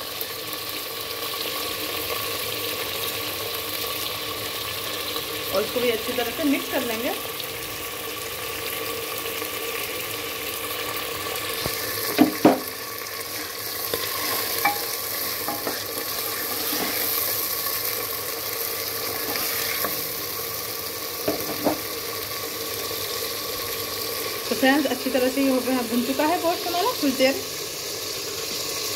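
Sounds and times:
meat and onions sizzling in oil: 0:00.0 - 0:28.9
spoon knocking against pot: 0:12.2 - 0:12.7, 0:14.6 - 0:14.9, 0:21.2 - 0:21.8
wooden spoon stirring: 0:13.3 - 0:17.3.

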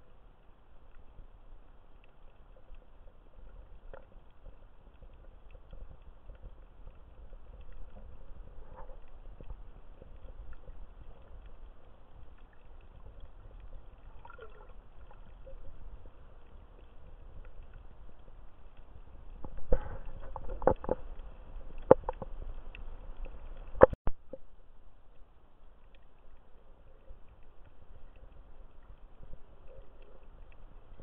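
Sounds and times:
faint underwater clicks: 0:00.0 - 0:31.0
underwater rumble of moving water: 0:00.0 - 0:31.0
water gurgles: 0:02.0 - 0:25.0.

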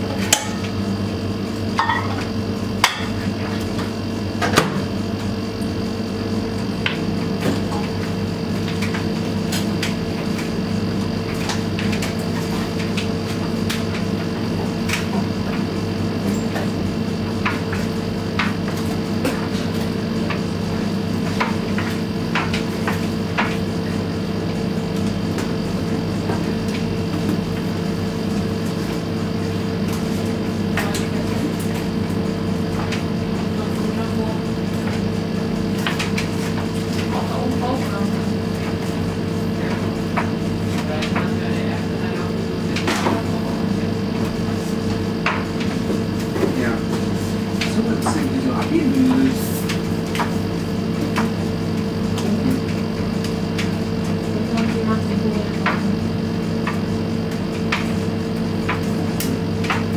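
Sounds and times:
washing machine motor hum: 0:00.0 - 0:59.9.

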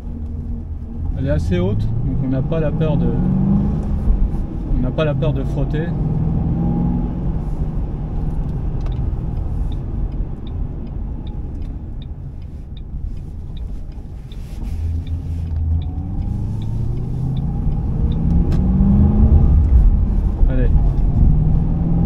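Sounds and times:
car engine rumbling: 0:00.0 - 0:22.0
faint steady ticking: 0:07.9 - 0:18.4.

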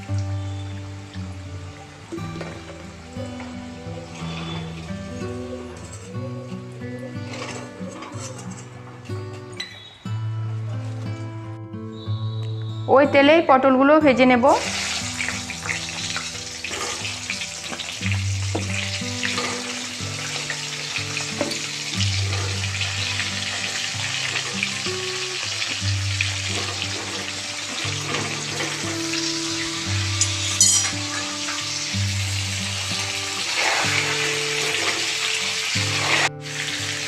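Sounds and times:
vegetable pieces sizzling in oil: 0:00.0 - 0:08.5, 0:14.5 - 0:37.0
background music with low notes: 0:00.0 - 0:37.0.

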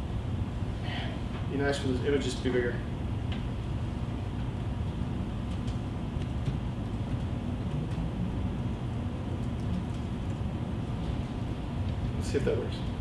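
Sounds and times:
low room hum: 0:00.0 - 0:13.0
typing on laptop keyboard: 0:05.4 - 0:08.1, 0:09.3 - 0:10.4.

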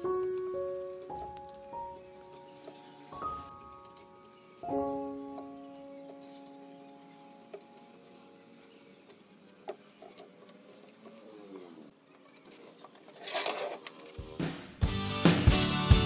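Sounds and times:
background music: 0:00.0 - 0:08.3, 0:14.2 - 0:16.0
faint scratching: 0:00.4 - 0:14.4
loud music: 0:14.4 - 0:16.0.

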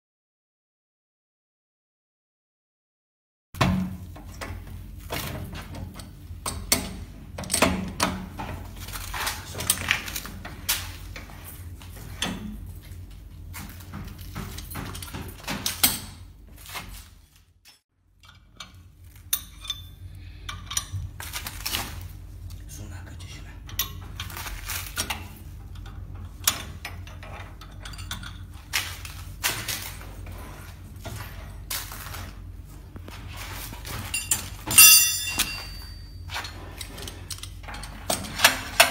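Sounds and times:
spanner clanking on metal: 0:17.7 - 0:21.0, 0:25.0 - 0:28.5, 0:33.9 - 0:38.9
steady low hum: 0:18.0 - 0:38.9.

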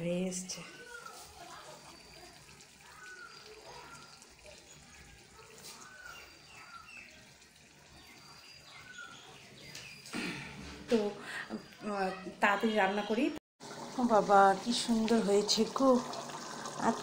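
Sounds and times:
curry simmering and bubbling: 0:00.6 - 0:10.0, 0:13.6 - 0:17.0.

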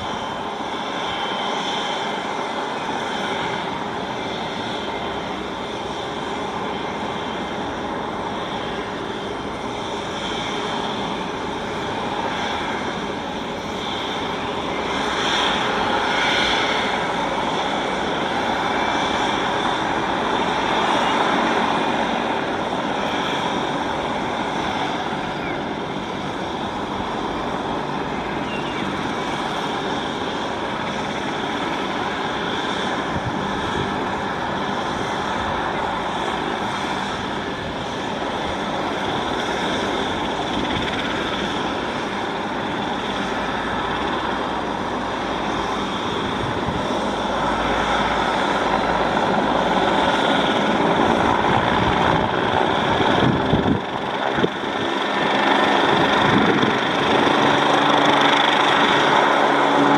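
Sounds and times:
helicopter rotor noise: 0:00.0 - 0:59.9
helicopter turbine whine: 0:00.0 - 0:59.9.

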